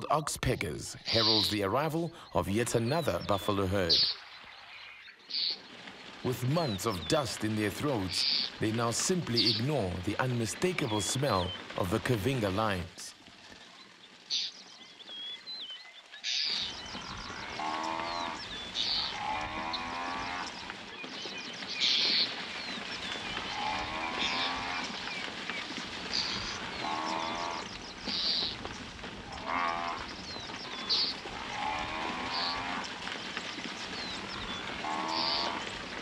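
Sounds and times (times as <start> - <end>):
high rasping bird calls: 0.9 - 4.4, 26.0 - 28.6, 33.9 - 35.8
buffalo lowing: 26.2 - 27.8, 29.3 - 32.9, 34.2 - 35.8.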